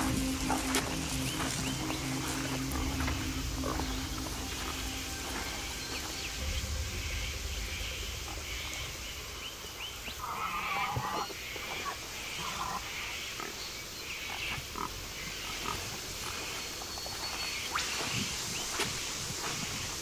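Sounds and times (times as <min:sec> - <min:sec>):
low rumble of wind: 0:00.0 - 0:20.0.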